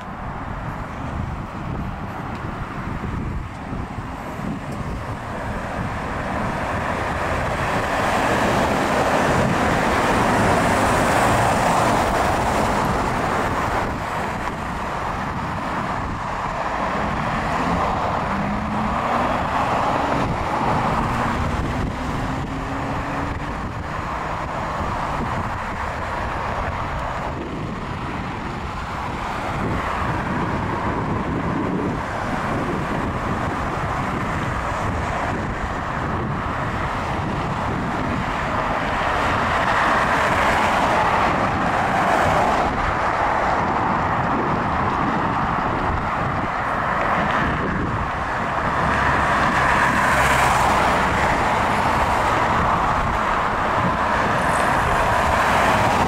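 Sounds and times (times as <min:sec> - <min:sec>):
cars passing on road: 0:00.0 - 0:56.0
vehicle accelerating away: 0:16.9 - 0:24.0.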